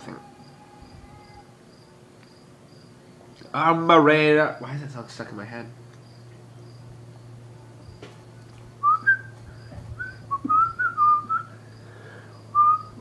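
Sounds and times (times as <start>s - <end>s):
man whistling: 8.8s - 9.4s, 10.0s - 11.6s, 12.5s - 13.0s.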